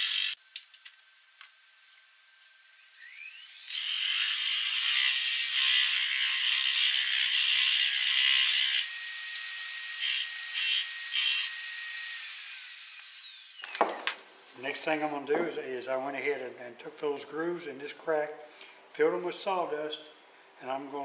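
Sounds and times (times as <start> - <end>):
wood lathe whining: 2.8 - 13.8.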